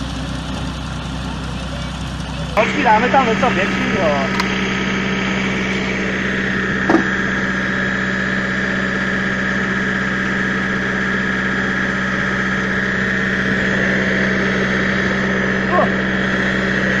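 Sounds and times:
high whine: 0:00.0 - 0:17.0
log splitter engine drone: 0:00.0 - 0:17.0
short knock: 0:06.9 - 0:07.1.

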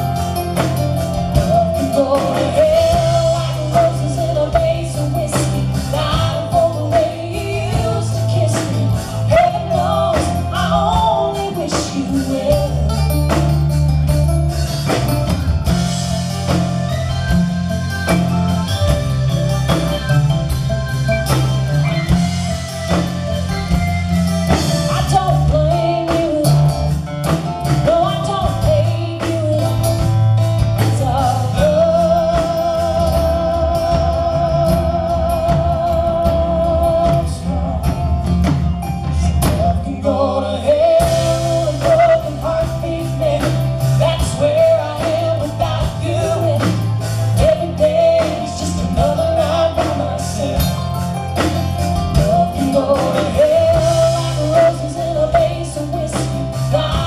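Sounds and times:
live country band: 0:00.0 - 0:57.0
female lead vocal: 0:01.2 - 0:13.5, 0:24.8 - 0:38.2, 0:39.1 - 0:50.9, 0:52.1 - 0:57.0.

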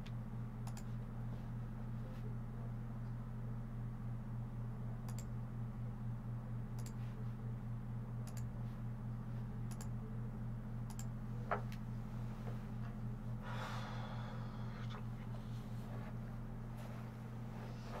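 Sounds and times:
low electrical hum: 0:00.0 - 0:18.0
computer mouse clicking: 0:00.6 - 0:00.9, 0:05.1 - 0:05.3, 0:06.8 - 0:07.0, 0:08.2 - 0:08.5, 0:09.7 - 0:09.9, 0:10.9 - 0:11.1.

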